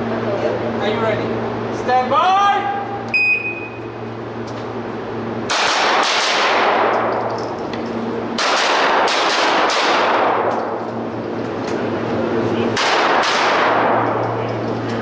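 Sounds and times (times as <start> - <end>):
carbine gunshots with echo: 5.5 - 7.1, 8.4 - 10.6, 12.8 - 14.2.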